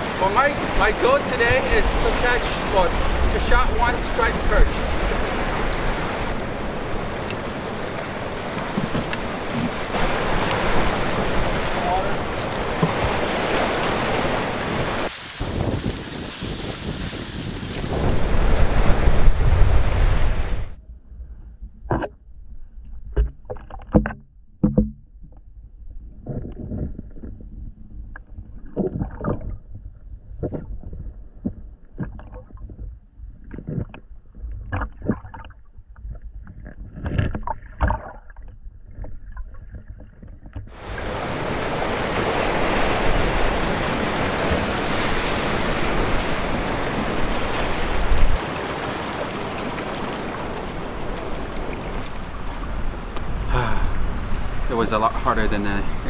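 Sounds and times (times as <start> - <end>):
ocean surf: 0.0 - 20.8, 40.7 - 56.0
wind: 0.0 - 56.0
underwater sloshing: 21.0 - 54.7.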